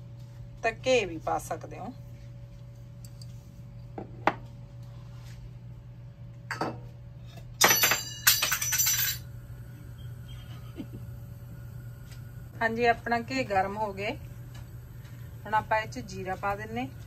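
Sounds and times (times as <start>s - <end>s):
steady low hum: 0.0s - 17.0s
utensils clinking: 7.6s - 9.3s.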